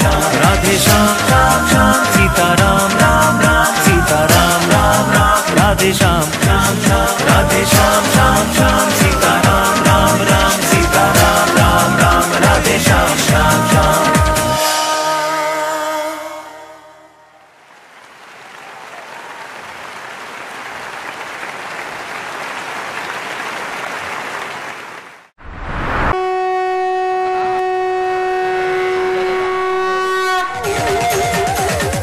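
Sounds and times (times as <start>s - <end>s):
dance music: 0.0s - 16.4s.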